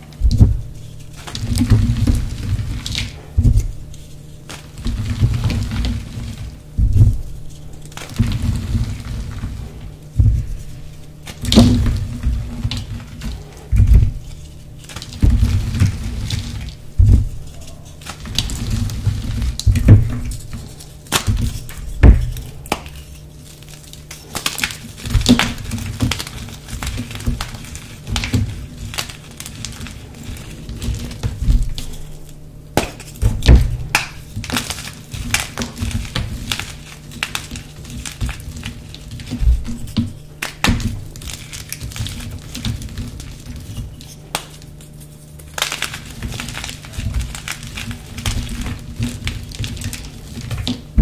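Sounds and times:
chalk blocks crunching: 0.0 - 51.0
soft powdery thuds: 6.7 - 7.5, 8.1 - 12.6.

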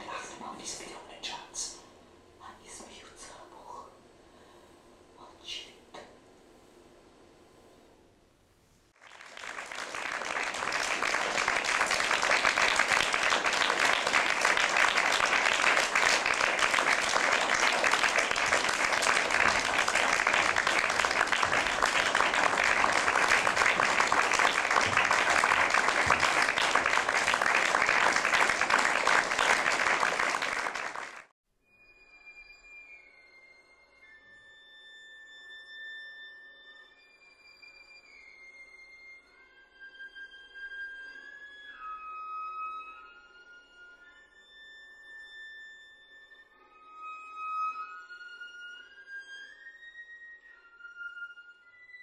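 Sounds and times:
audience applauding: 9.0 - 31.3.

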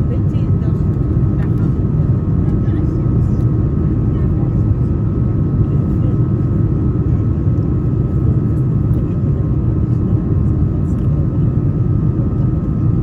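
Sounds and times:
airliner engine rumble: 0.0 - 13.0
engine whine: 0.0 - 13.0.

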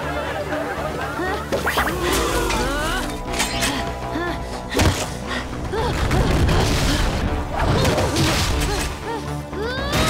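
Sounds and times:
cartoon music: 1.5 - 3.5.

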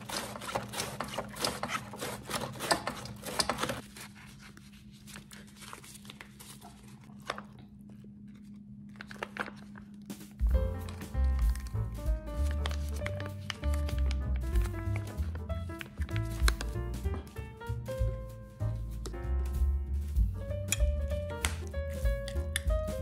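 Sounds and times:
mandoline slicer scraping cabbage: 0.0 - 4.2.

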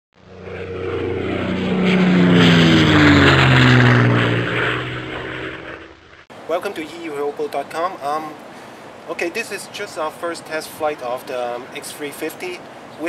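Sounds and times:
airplane flying by: 0.2 - 6.3.

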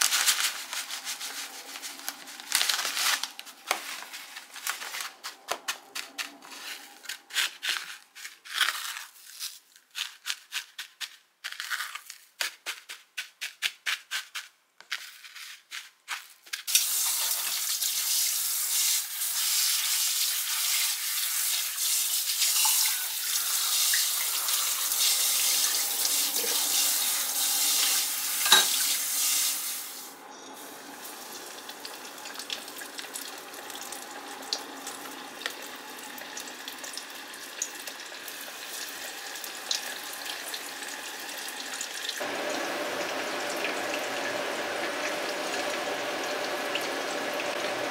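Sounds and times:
hands patting breadcrumbs: 0.0 - 16.7
deep-frying in oil: 16.6 - 47.9
kitchen tap running: 16.7 - 30.1, 30.7 - 47.9.

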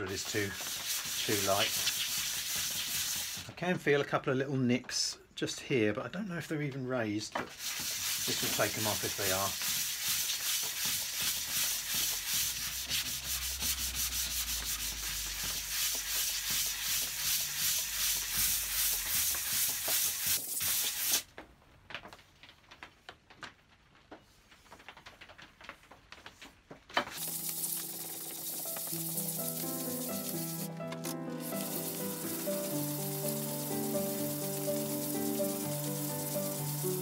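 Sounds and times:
metal rubbing on sandpaper: 0.0 - 3.5, 7.5 - 21.2, 27.2 - 37.0
background music: 27.2 - 37.0.

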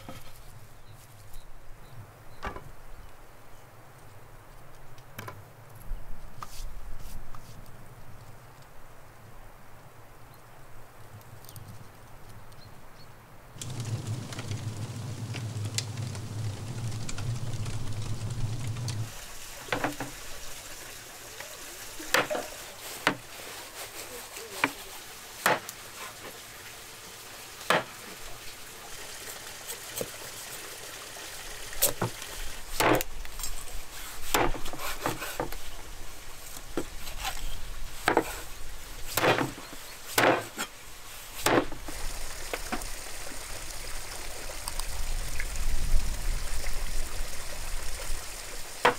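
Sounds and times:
steady low hum: 13.6 - 19.1
cooking hiss: 13.6 - 48.9.

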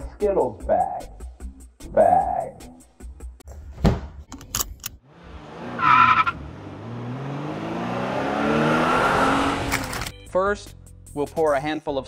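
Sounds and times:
car accelerating: 5.0 - 10.0
tire squeal: 5.7 - 6.5.

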